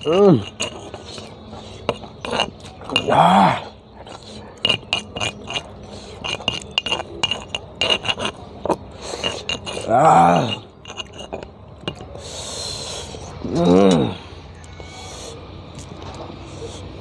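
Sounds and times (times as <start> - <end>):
pestle clinking in mortar: 0.0 - 12.2.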